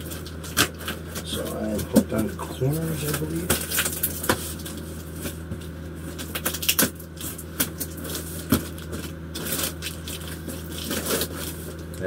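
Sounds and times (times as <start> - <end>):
steady low hum: 0.0 - 12.0
cardboard box scraping and creaking: 7.3 - 11.8.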